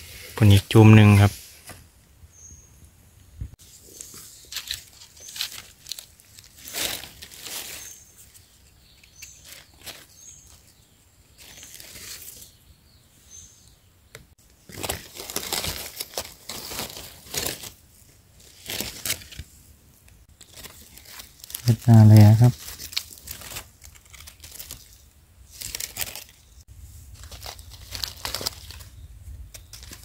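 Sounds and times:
dry leaves crackling underfoot: 3.6s - 12.6s, 14.6s - 19.5s, 20.3s - 30.0s.

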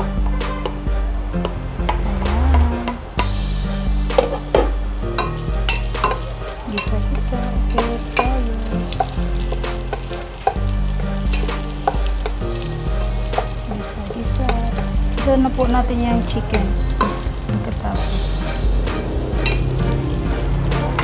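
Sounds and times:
onion and garlic sizzling in oil: 3.2s - 21.0s.

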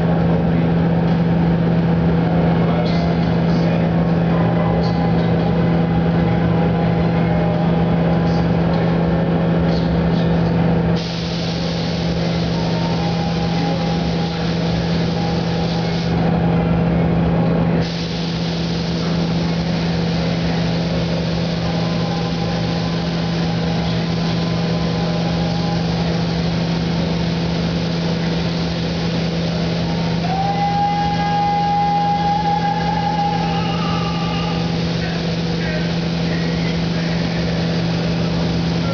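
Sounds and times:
low machine hum: 0.0s - 38.9s
paint spray gun hissing: 11.0s - 16.2s, 17.8s - 30.4s, 33.2s - 38.9s.

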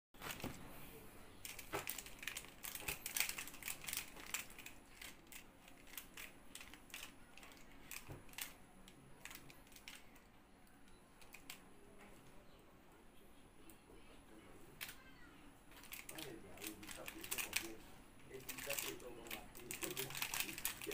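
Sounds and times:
plastic puzzle clicking: 1.4s - 10.2s, 15.8s - 17.7s, 18.4s - 20.9s.

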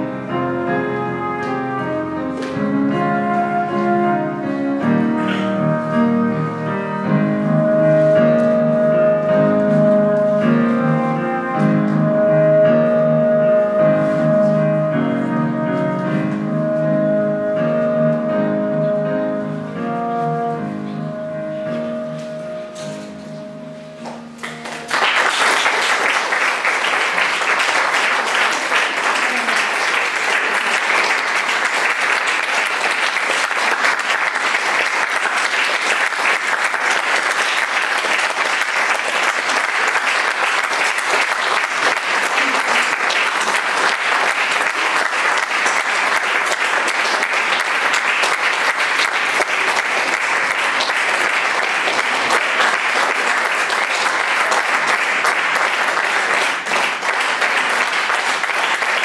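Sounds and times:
audience applauding: 5.2s - 5.6s, 24.0s - 59.0s.

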